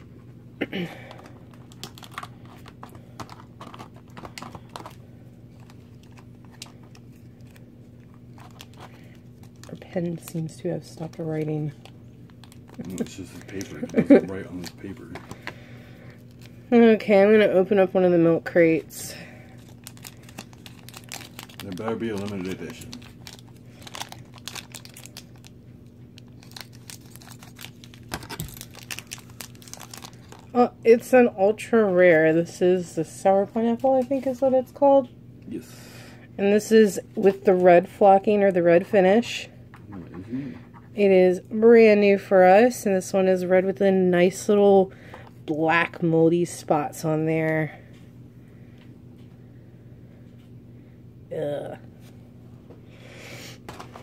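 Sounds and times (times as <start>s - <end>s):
steady low hum: 0.0s - 54.0s
plastic wrapper crinkling and tearing: 1.1s - 16.6s, 19.5s - 30.6s
plastic toy package clicks: 1.5s - 5.0s, 19.8s - 25.5s, 26.2s - 30.5s.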